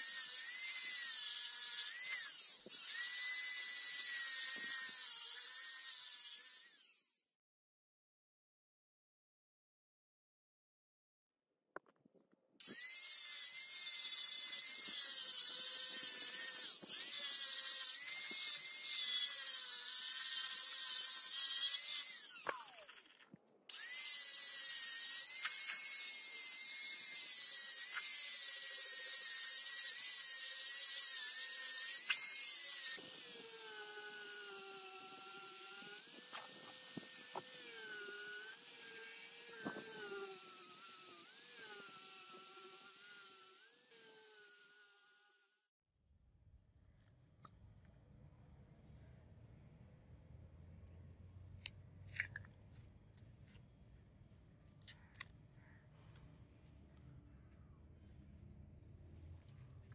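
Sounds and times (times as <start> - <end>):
angle grinder sanding steel: 23.7 - 45.4
polishing pad buffing steel: 30.4 - 43.6.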